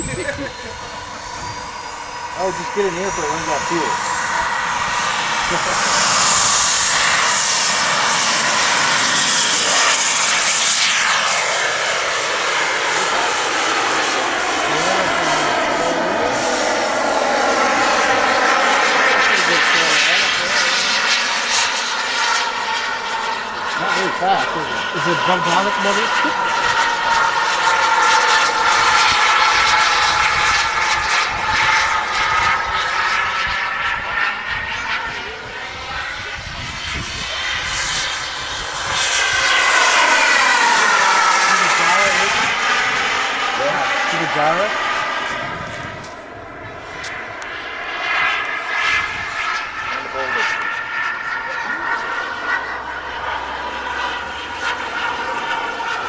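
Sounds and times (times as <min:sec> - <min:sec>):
model jet turbine whine: 0:00.0 - 0:56.0.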